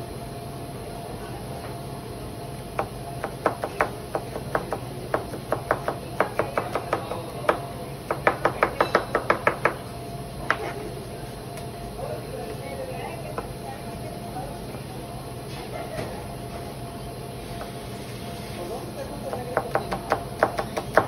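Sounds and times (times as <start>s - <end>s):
knife chopping on cutting board: 2.8s - 9.8s, 19.3s - 21.0s.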